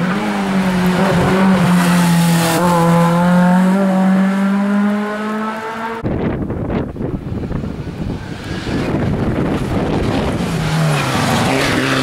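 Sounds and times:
rally car engine at high revs: 0.0s - 6.0s, 7.7s - 12.0s
wind buffeting microphone: 5.9s - 11.8s.

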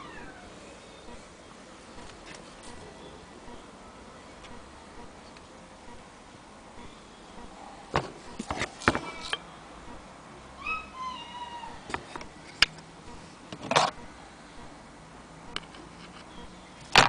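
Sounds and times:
cat meowing: 0.0s - 0.5s.

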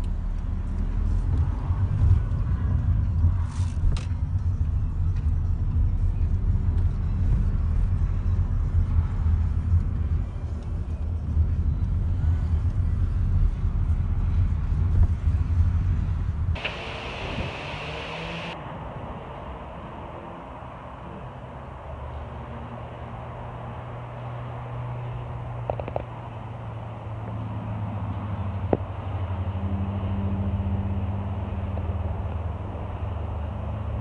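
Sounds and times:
car cabin rumble while driving: 0.0s - 18.6s.

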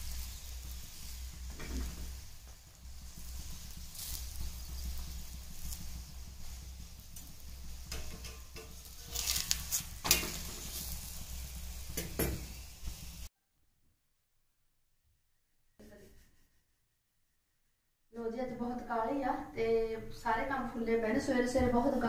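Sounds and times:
flatbread sizzling on pan: 0.0s - 13.3s
metal utensils scraping a pan: 3.1s - 12.7s.

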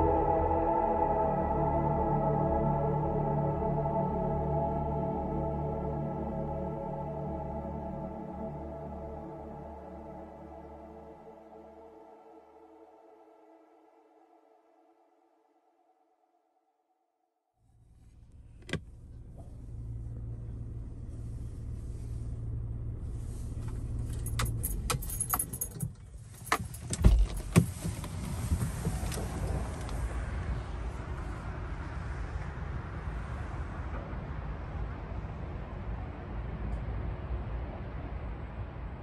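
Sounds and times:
car low hum: 17.6s - 39.0s
steady rumbling noise: 17.7s - 39.0s
clicks and jangling: 24.0s - 29.3s.

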